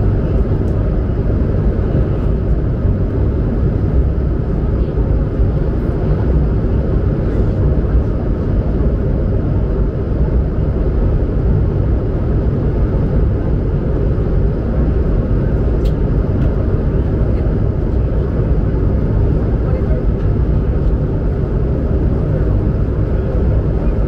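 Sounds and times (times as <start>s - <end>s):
aircraft cabin engine rumble: 0.0s - 24.0s.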